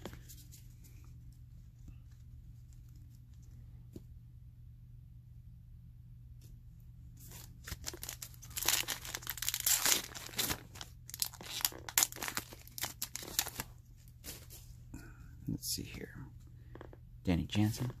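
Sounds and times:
card pack wrapper crinkling and tearing: 7.3s - 13.7s.

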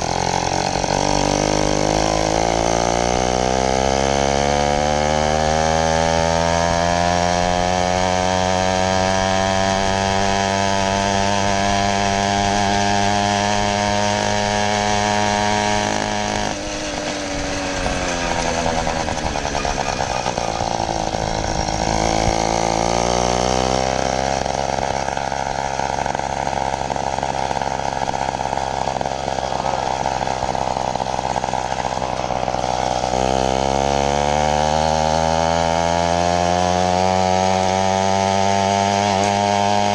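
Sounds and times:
two-stroke bicycle engine running: 0.0s - 39.9s.

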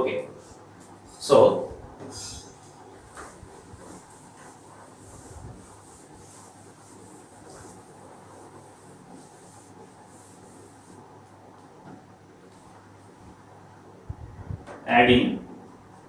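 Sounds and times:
cloth wiping whiteboard: 0.2s - 13.1s.

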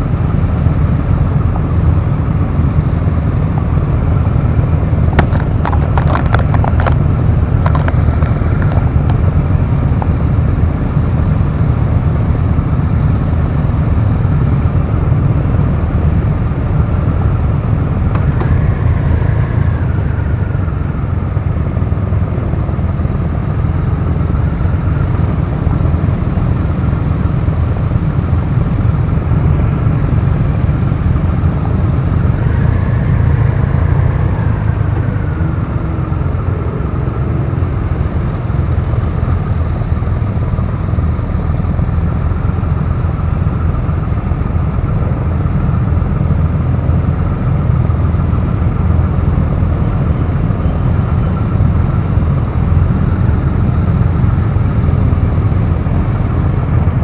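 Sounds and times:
rising and falling whine: 0.0s - 57.0s
motorcycle engine idling: 7.1s - 57.0s.

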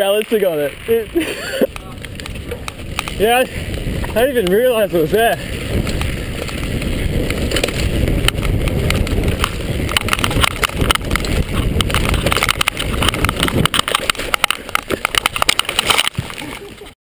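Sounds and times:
bike rattling over bumps: 0.0s - 17.0s
tyres rumbling on dirt trail: 0.0s - 17.0s
wind on microphone: 0.6s - 17.0s
bike crash: 5.4s - 16.9s.

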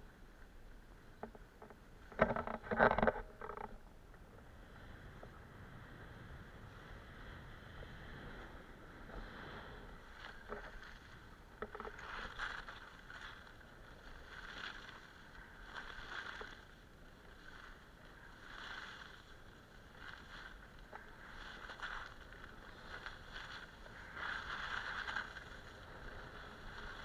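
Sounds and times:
skis scraping over packed snow: 4.5s - 27.0s.

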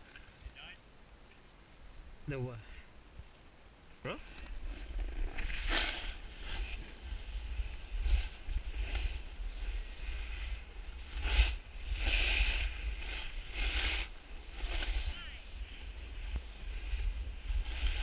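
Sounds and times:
snowboard scraping snow: 4.1s - 18.0s
wind on microphone: 4.3s - 18.0s.

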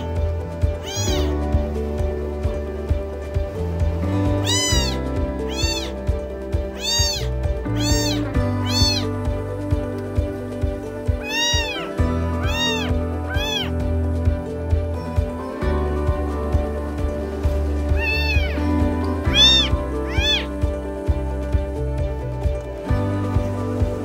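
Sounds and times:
background music: 0.0s - 24.0s
kitten meowing: 0.7s - 1.3s, 4.4s - 6.0s, 6.8s - 9.1s, 11.2s - 13.8s, 17.9s - 20.6s.

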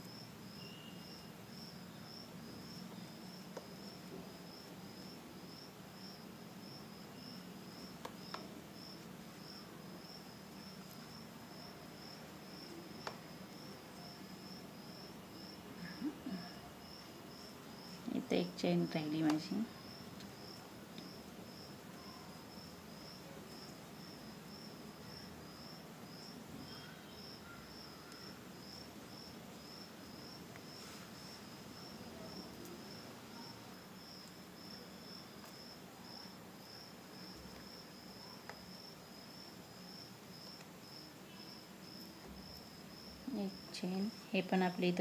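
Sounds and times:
cricket chirping: 0.0s - 44.8s.

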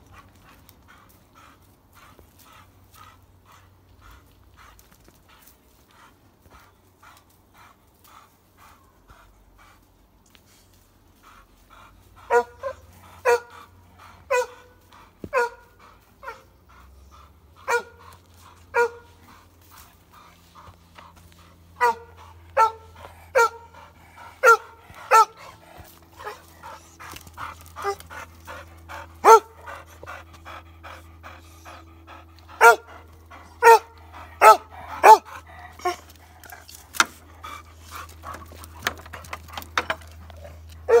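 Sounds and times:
dog barking: 12.3s - 13.5s, 14.3s - 14.6s, 15.3s - 15.6s, 17.7s - 18.0s, 18.7s - 19.1s, 21.8s - 23.7s, 24.4s - 25.4s, 29.2s - 29.6s, 32.6s - 32.9s, 33.6s - 36.0s.

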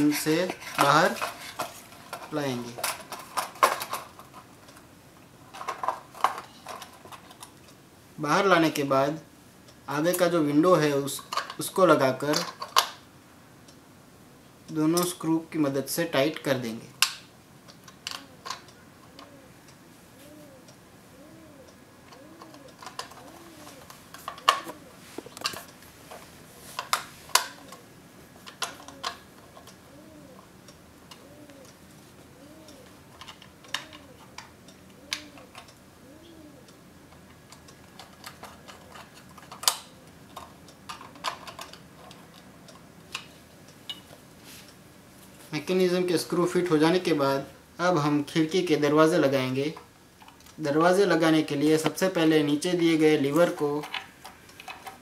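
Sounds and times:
faint rising and falling tone: 19.2s - 23.9s.

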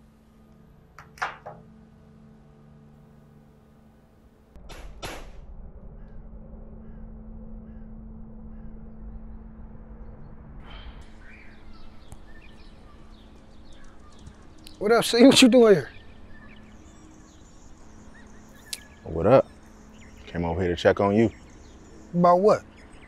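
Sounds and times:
faint chirps: 5.9s - 23.0s.

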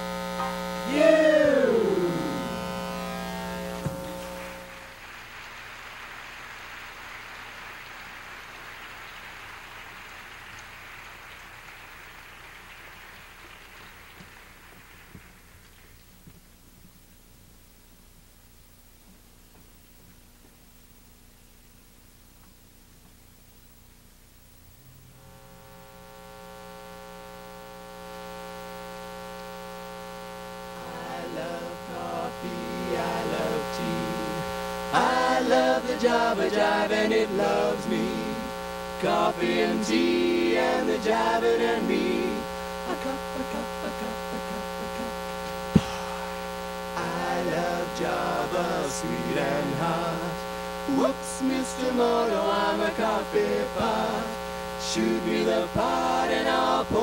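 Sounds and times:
electrical mains hum and buzz: 0.0s - 57.0s
vocal group singing a cappella: 0.8s - 4.2s, 30.8s - 45.2s, 46.9s - 57.0s
audience applauding: 4.0s - 16.1s.

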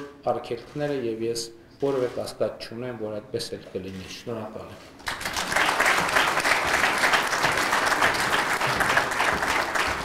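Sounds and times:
audience applauding: 5.0s - 10.0s.

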